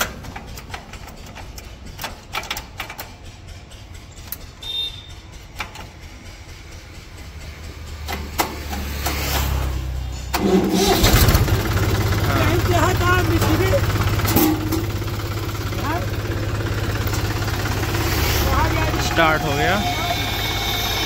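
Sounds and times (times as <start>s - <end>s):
sharp metallic clicks: 0.0s - 10.5s
tractor engine cranking: 0.0s - 21.0s.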